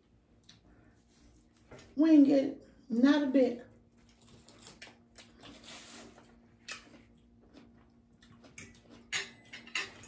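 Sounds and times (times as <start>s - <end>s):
faint steady hum: 0.0s - 10.0s
wet eating clicks and smacks: 6.6s - 10.0s.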